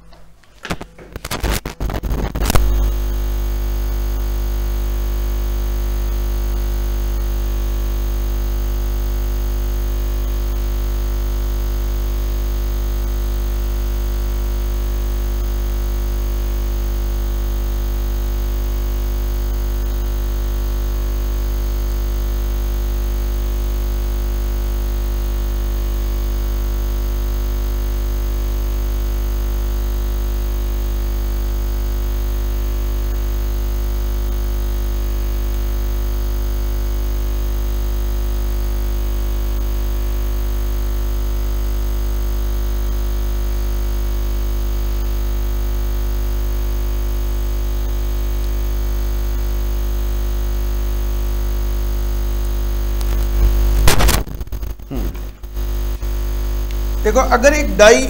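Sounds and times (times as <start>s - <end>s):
electrical hum: 0.0s - 18.2s, 52.4s - 58.0s.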